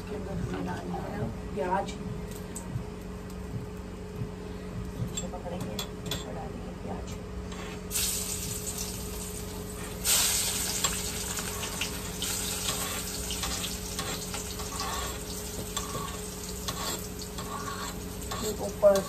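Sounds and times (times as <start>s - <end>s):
onions sizzling in hot oil: 7.9s - 19.0s
small crackles of frying: 7.9s - 19.0s.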